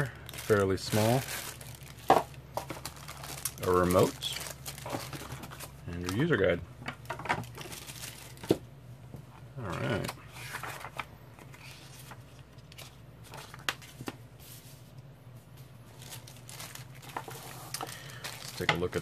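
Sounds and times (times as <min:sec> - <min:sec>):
booklet pages rustling: 0:09.9 - 0:14.8.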